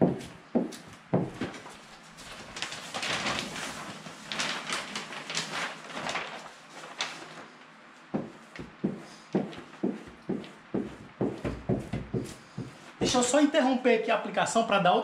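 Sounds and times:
paper backing crinkling: 1.4s - 9.0s.

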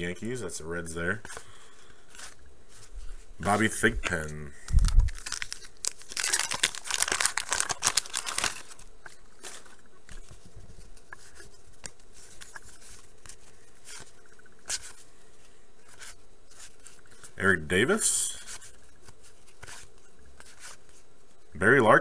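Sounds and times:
cardboard cards rustling: 1.2s - 15.1s, 15.8s - 17.4s, 18.4s - 21.0s
wax paper wrapper crinkling and tearing: 2.1s - 10.3s.

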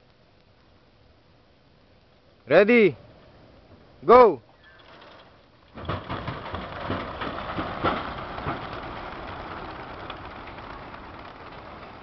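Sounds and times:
pigeon wingbeats clattering: 4.6s - 12.0s.

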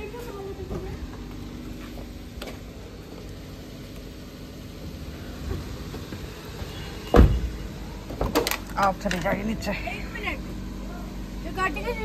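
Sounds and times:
car engine idling: 0.0s - 12.0s
car door slamming: 5.4s - 8.6s.

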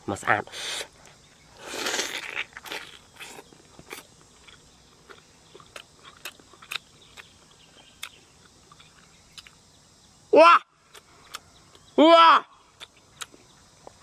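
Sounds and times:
person chewing food: 1.0s - 9.6s, 10.9s - 11.8s, 12.8s - 14.0s.

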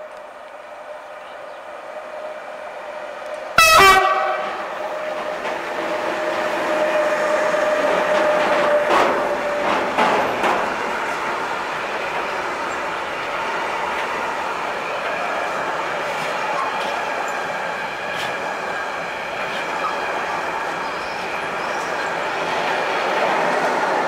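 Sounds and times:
locomotive whine: 0.0s - 24.0s
train wheels rolling: 2.1s - 24.0s
wheels clacking over rail joints: 3.2s - 24.0s
train horn blast: 3.6s - 4.8s.

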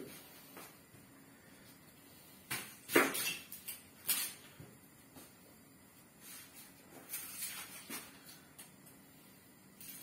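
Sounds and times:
kitchen rustling and scraping: 6.2s - 8.7s.

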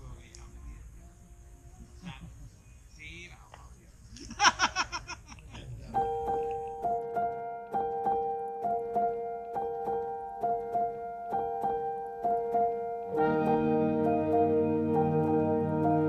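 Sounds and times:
keyboard chords: 5.8s - 16.0s
keyboard plucked notes: 5.9s - 16.0s.

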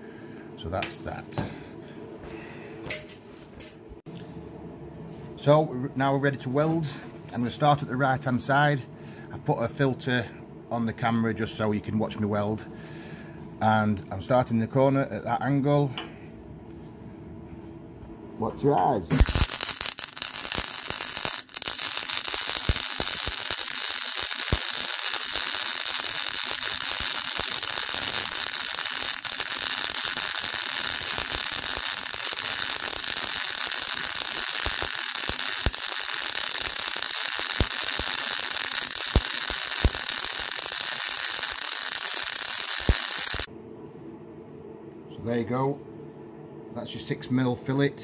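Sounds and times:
welding arc crackling hiss: 19.1s - 43.5s.

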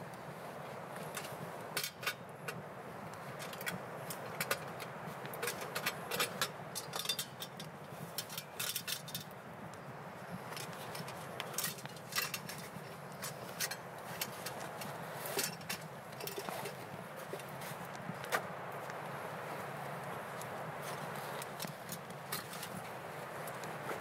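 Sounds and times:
steady background hiss: 0.0s - 24.0s
metal cookware clinking and rattling: 5.5s - 9.3s.

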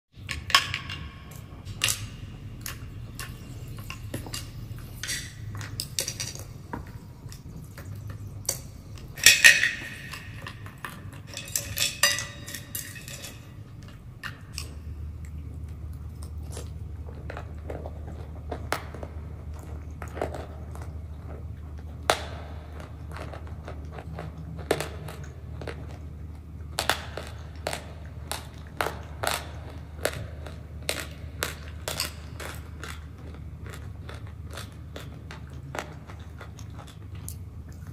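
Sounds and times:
metal spoon scraping a bowl: 0.3s - 13.8s
chewing and mouth sounds: 0.3s - 37.9s.

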